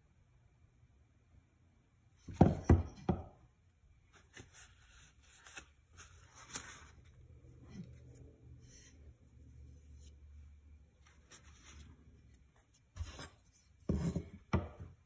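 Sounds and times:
paper rustling and crinkling: 4.1 - 9.0, 11.0 - 13.8.

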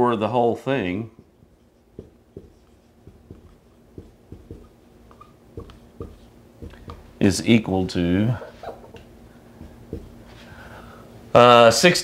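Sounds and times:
marker writing on whiteboard: 1.1 - 7.2, 8.6 - 10.4
marker tip squeaks: 4.5 - 5.8.

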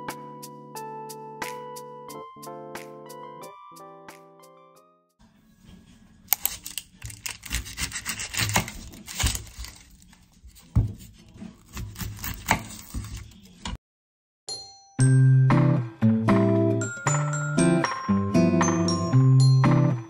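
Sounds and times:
onion skin scraping and tearing: 6.3 - 13.7
knife knocking on cutting board: 10.7 - 11.0.

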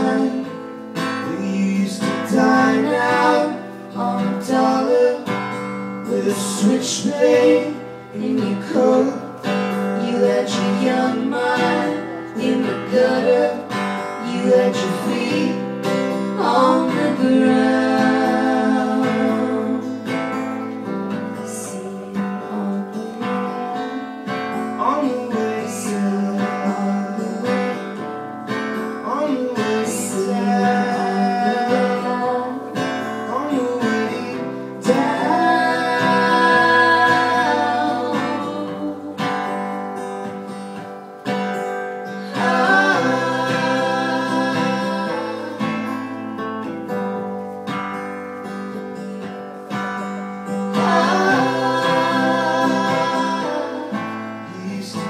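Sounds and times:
wordless singing: 0.0 - 20.2, 29.0 - 39.6, 42.0 - 46.4, 50.4 - 55.0
strummed acoustic guitar: 0.0 - 55.0.

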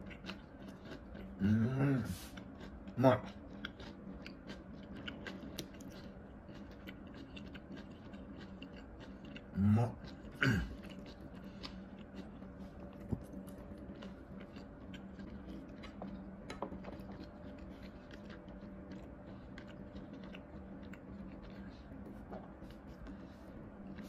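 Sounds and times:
faint steady hum: 0.0 - 24.0
person chewing crunchy food: 0.0 - 24.0.

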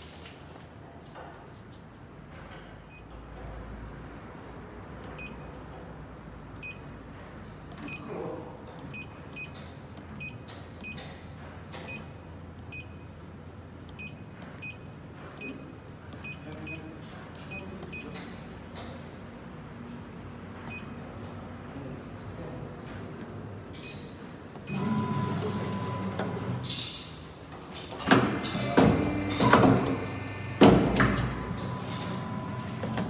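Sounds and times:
steady low hum: 27.2 - 33.0.

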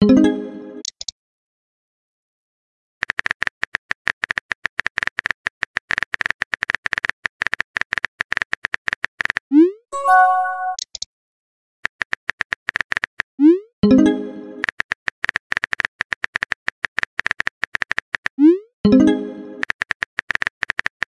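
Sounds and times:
short electronic chime: 10.0 - 10.8.

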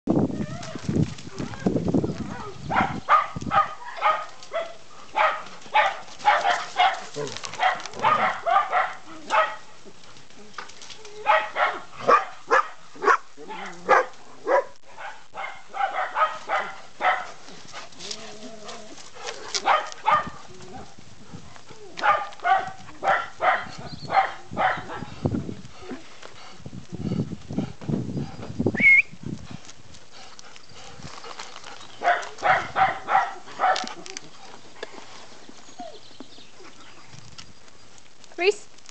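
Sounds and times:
dogs barking: 2.3 - 9.7, 11.2 - 17.4, 19.5 - 20.9, 22.0 - 25.1, 32.0 - 34.0
dogs growling: 6.5 - 9.3, 17.4 - 21.0.

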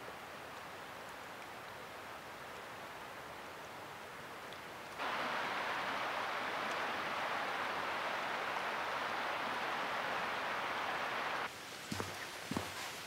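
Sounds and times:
creek rushing: 4.9 - 13.0.

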